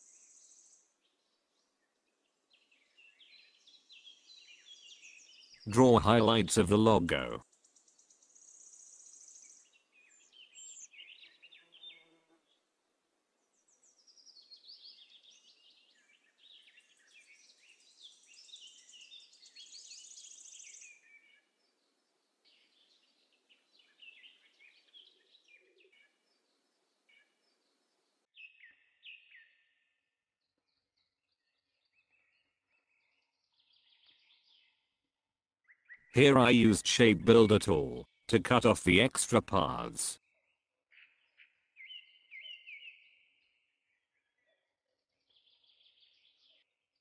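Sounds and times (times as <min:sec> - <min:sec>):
faint bird chirps: 0:00.0 - 0:05.7, 0:07.6 - 0:12.6, 0:13.5 - 0:29.9, 0:40.3 - 0:46.7.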